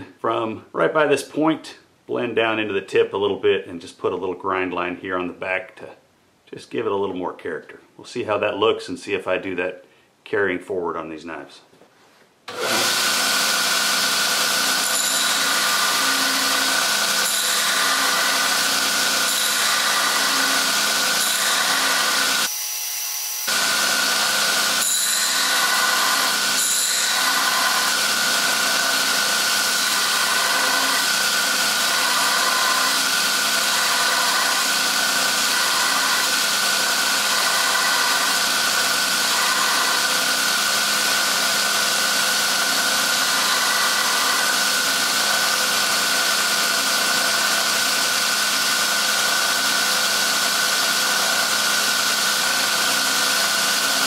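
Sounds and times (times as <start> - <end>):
belt grinder grinding steel blade: 12.5 - 54.0.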